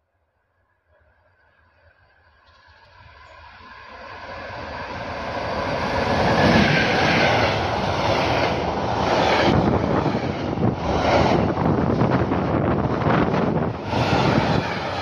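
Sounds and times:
electric locomotive passing: 1.6 - 15.0.

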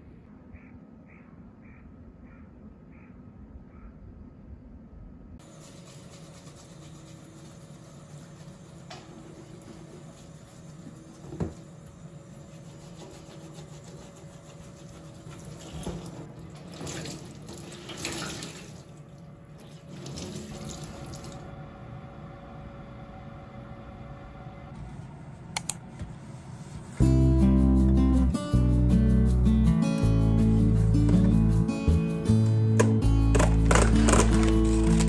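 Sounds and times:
brush scrubbing fabric mat: 5.4 - 7.7, 12.4 - 16.1
tap running into a metal sink: 11.2 - 11.6.

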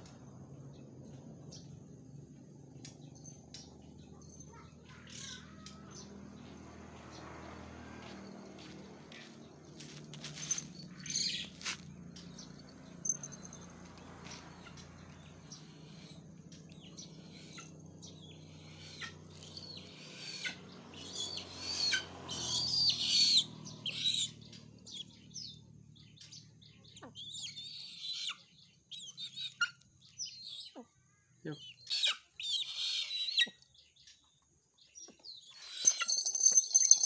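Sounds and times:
eagle squealing calls: 31.6 - 33.5.

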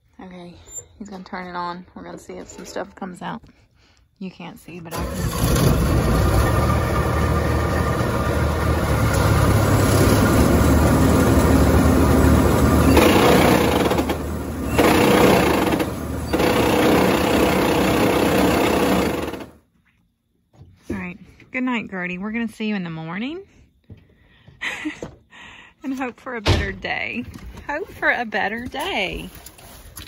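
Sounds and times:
rattling clatter: 4.9 - 19.6
combine mechanical drone: 5.0 - 19.6.

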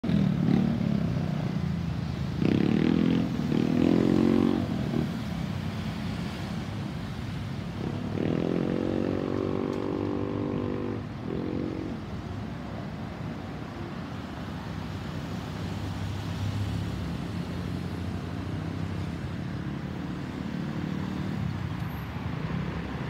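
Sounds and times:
vehicle engines pulling away: 2.1 - 12.0.

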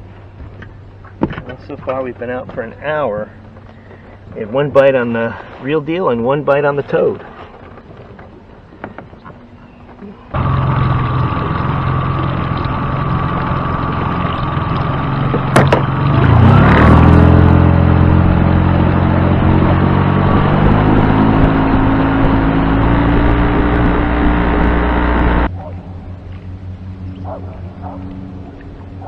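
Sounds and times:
outboard motor running: 7.1 - 29.0.

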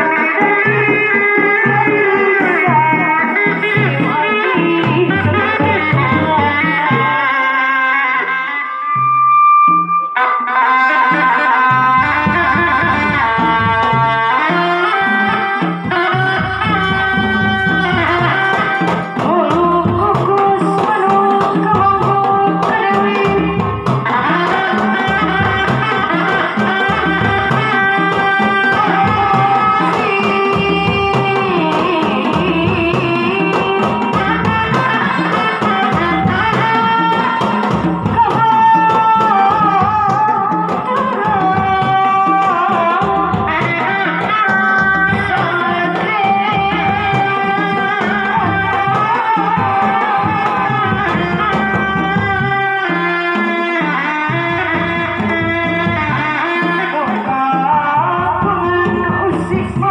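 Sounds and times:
wavering melody line: 0.0 - 7.5
drums beaten in interlocking pattern: 0.0 - 8.4, 9.0 - 59.9.

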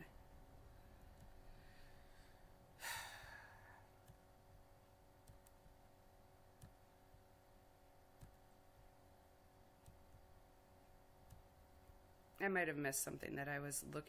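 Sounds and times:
faint steady hum: 0.0 - 14.0
person sighing: 2.8 - 3.9.

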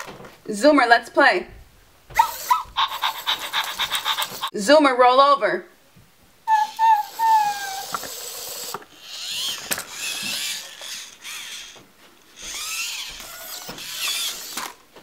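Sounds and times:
robot toy motors whirring: 2.2 - 4.5, 6.5 - 11.8, 12.4 - 14.8.

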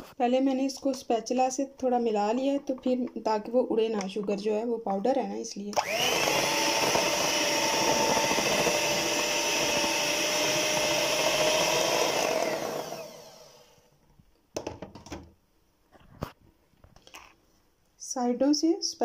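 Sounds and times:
electric hand mixer running: 5.8 - 13.9.

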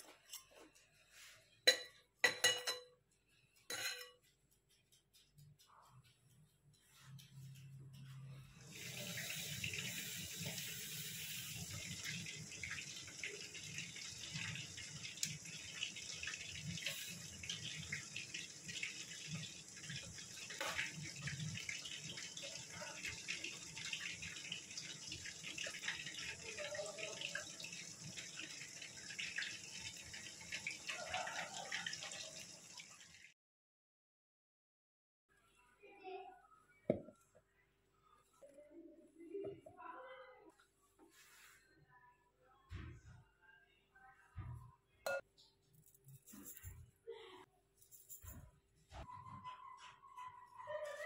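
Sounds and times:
small crackling ticks: 4.3 - 8.1.

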